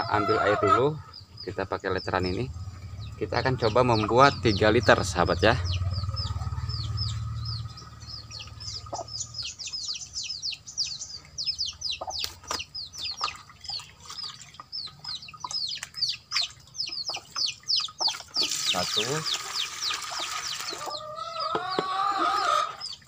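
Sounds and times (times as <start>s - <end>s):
birds chirping rapidly: 0.0s - 23.0s
low hum: 1.9s - 11.7s.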